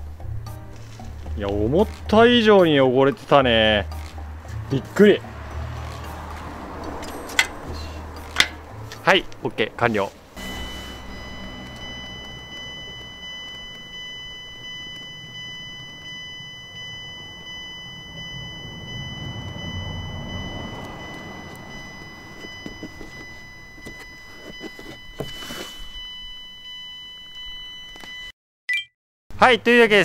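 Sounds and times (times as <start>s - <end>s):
car door warning chime: 8.4s - 28.3s
rubbing and handling noise: 22.0s - 26.0s.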